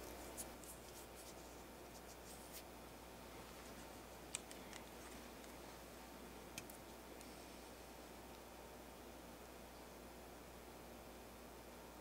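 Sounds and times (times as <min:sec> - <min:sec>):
light ticks and scratches: 0:00.0 - 0:02.7.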